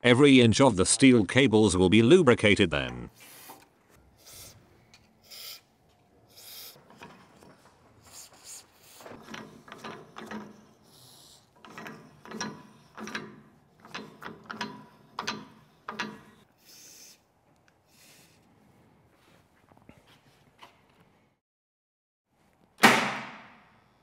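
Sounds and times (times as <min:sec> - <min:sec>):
metal scraping on a thread: 0:06.3 - 0:16.5.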